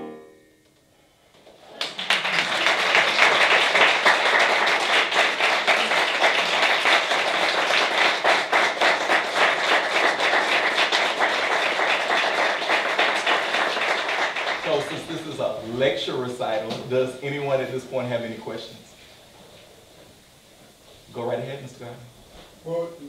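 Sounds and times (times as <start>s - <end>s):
audience applauding: 1.5s - 15.4s.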